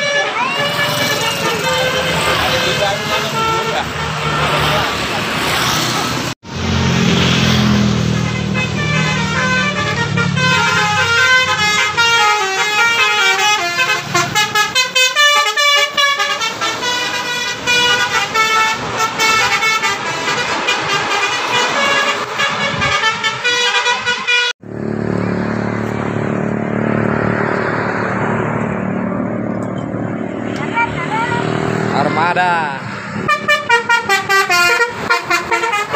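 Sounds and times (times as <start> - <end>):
musical bus horn melody: 0.0 - 4.2, 8.1 - 24.6, 33.2 - 35.9
bus engine: 0.0 - 35.9
passing traffic noise: 0.0 - 35.9.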